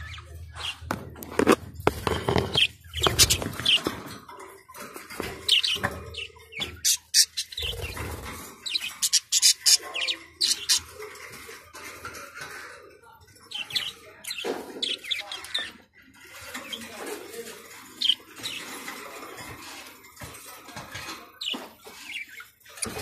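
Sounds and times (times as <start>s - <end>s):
parrot chirps and squawks: 8.7s - 11.0s.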